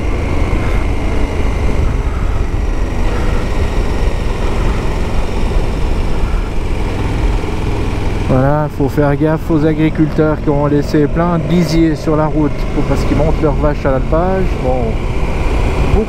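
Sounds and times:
wind rush on camera: 0:00.0 - 0:08.3
motorcycle engine rumble: 0:00.0 - 0:16.0.

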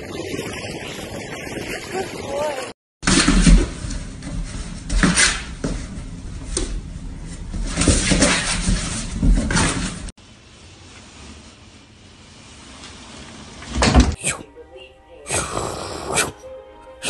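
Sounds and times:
puppy scrabbling on cardboard box: 0:07.5 - 0:10.1.

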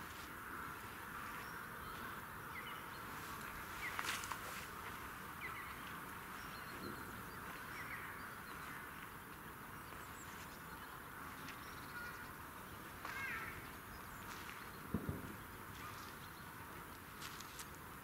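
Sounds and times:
faint outdoor hiss: 0:00.0 - 0:18.0
short bird calls: 0:11.7 - 0:16.6.

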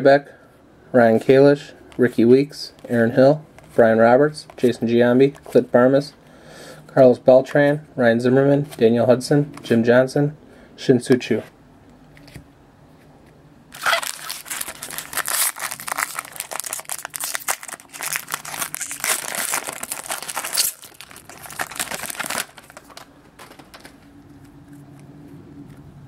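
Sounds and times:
foil wrapper crinkling: 0:13.7 - 0:24.0.

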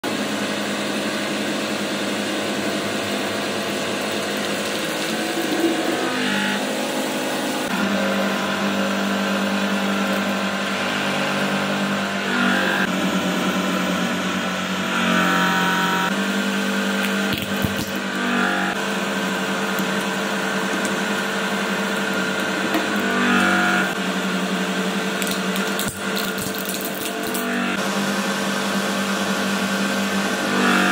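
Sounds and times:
hydraulic pump motor hum: 0:00.1 - 0:26.2, 0:27.2 - 0:30.9.

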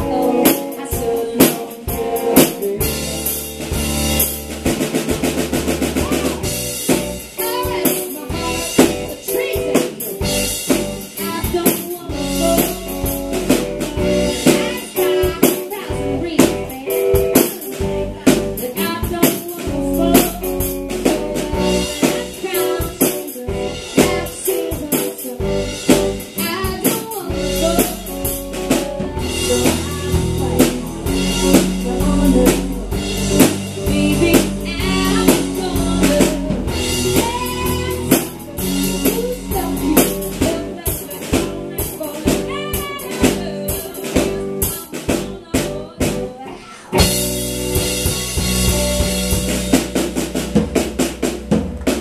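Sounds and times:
woman singing lead: 0:00.0 - 0:03.5, 0:06.0 - 0:49.4
drum kit: 0:00.0 - 0:52.0
electric guitar: 0:00.0 - 0:52.0
heavy low end: 0:27.3 - 0:40.6, 0:47.0 - 0:52.0.

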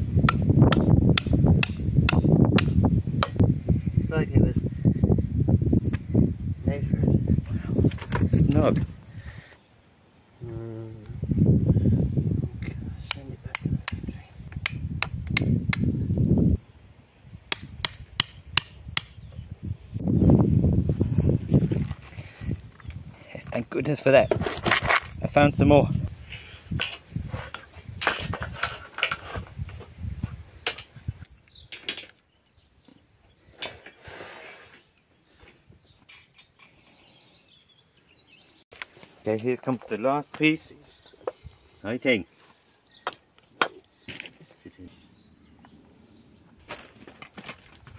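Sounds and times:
hammer striking metal pin: 0:00.3 - 0:03.4
birds chirping: 0:19.0 - 0:20.3, 0:30.3 - 0:47.0.

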